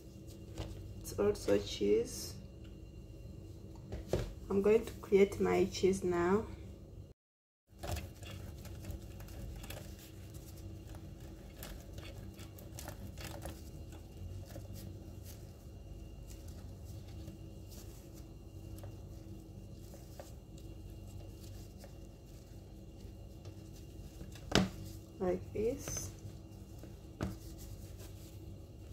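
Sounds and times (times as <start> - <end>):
cheese grating on metal grater: 10.5 - 15.2.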